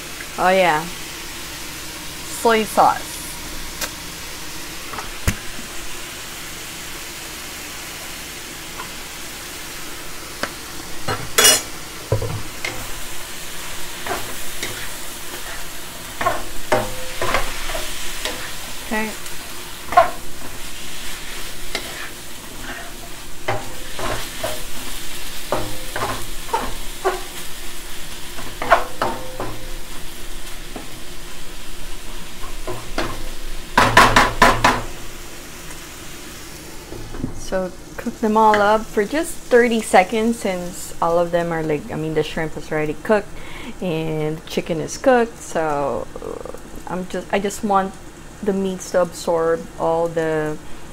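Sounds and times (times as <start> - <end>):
food sizzling in a wok: 0.0 - 50.9
wooden spatula scraping a pan: 19.9 - 27.4.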